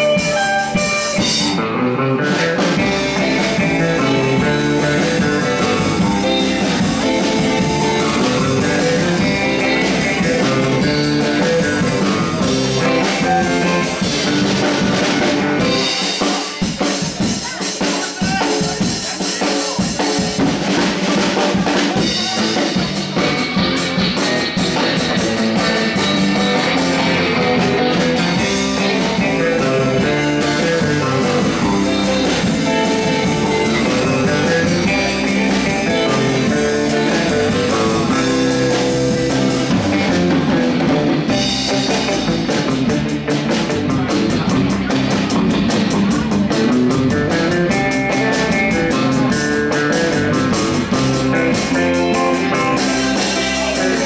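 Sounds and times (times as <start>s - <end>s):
surf-rock band playing live: 0.0s - 54.0s.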